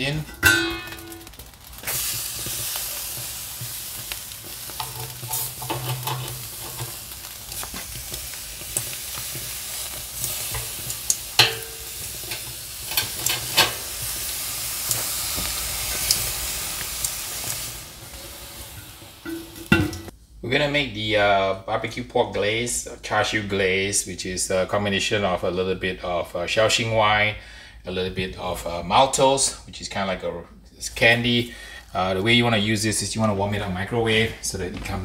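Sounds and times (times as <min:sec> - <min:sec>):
metal skewers clinking: 0:00.0 - 0:01.4, 0:11.4 - 0:13.8
charcoal hissing and crackling: 0:00.0 - 0:20.2, 0:28.6 - 0:35.0.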